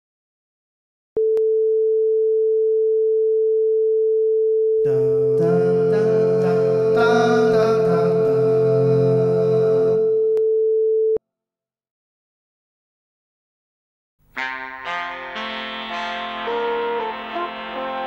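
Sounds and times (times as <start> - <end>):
music: 14.4 - 18.0.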